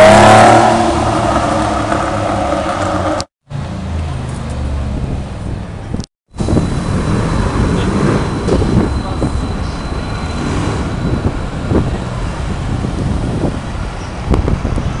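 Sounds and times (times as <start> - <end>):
city traffic rumble: 0.0 - 15.0
tram rolling on rails: 5.4 - 15.0
high wheel squeal: 6.4 - 14.2.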